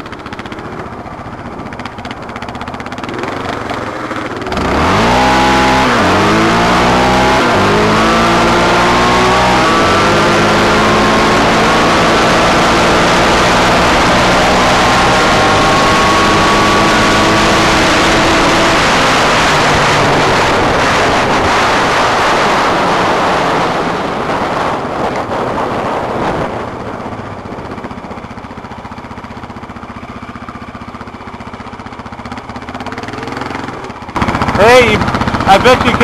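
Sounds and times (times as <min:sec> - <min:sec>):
atv engine running: 0:00.0 - 0:36.0
wind rushing: 0:04.5 - 0:28.4.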